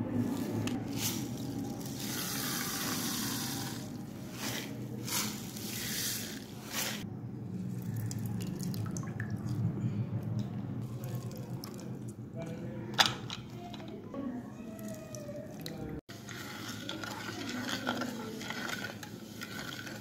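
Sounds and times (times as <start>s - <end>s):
liquid pouring into water: 7.7s - 9.7s, 10.8s - 12.1s.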